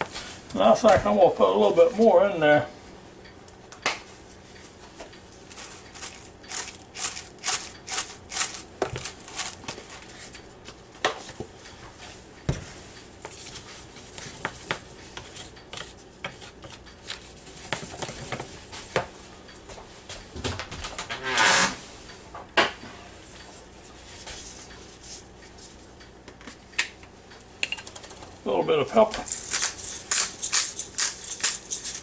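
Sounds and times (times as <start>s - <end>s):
paper bag rustling: 5.5s - 10.2s
wire whisk scraping in flour: 5.6s - 10.4s, 29.2s - 32.0s.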